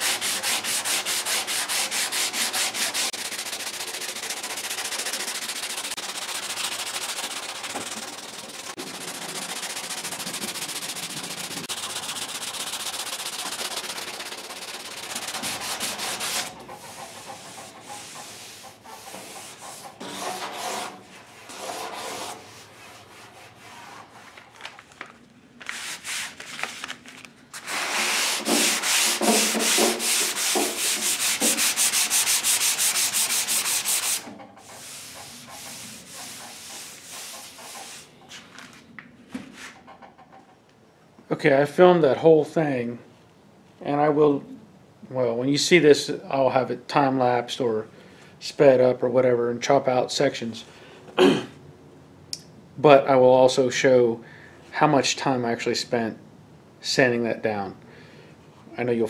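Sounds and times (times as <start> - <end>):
sanding block scraping filler: 0.0 - 24.4, 27.6 - 38.2.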